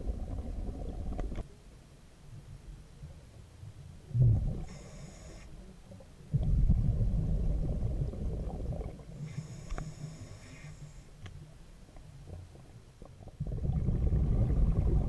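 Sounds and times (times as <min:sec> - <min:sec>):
exhaled bubbles rumbling: 0:00.0 - 0:01.4, 0:04.1 - 0:04.8, 0:06.2 - 0:09.4, 0:12.2 - 0:15.0
hissing regulator inhale: 0:04.6 - 0:05.5, 0:09.2 - 0:11.2.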